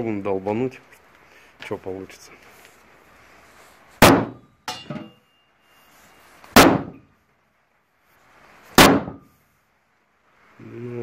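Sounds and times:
hammer striking metal panel: 4.0s - 5.2s, 6.6s - 7.0s, 8.8s - 9.3s.

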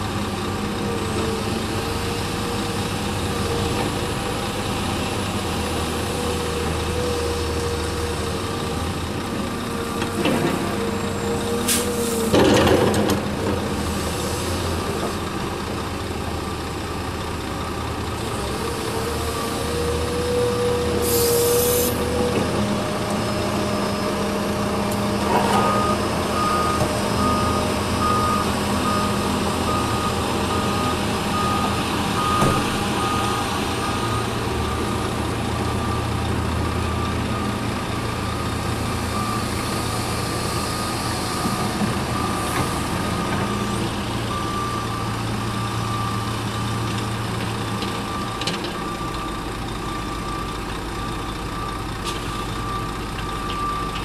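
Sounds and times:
diesel engines humming: 0.0s - 54.0s
reversing alarm beeps: 25.5s - 34.4s, 39.1s - 39.7s, 43.4s - 46.9s, 48.0s - 54.0s.

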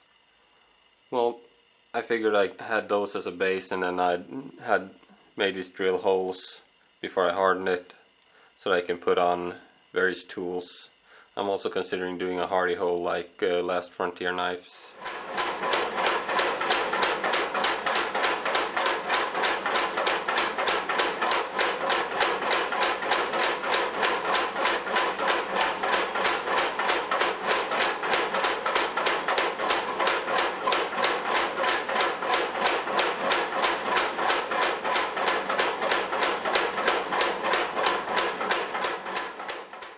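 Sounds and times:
power hammer pounding steel: 15.0s - 39.9s.

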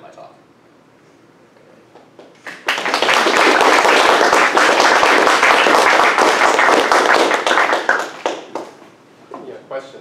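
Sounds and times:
audience applauding: 2.4s - 8.8s.

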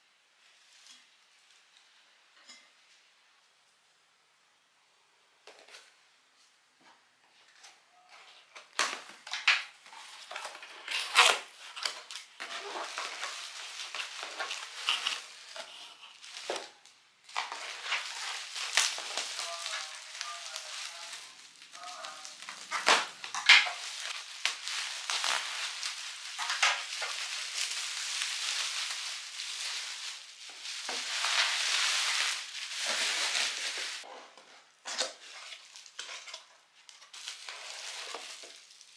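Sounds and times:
bubble wrap crinkling: 8.0s - 34.1s, 35.0s - 38.9s.

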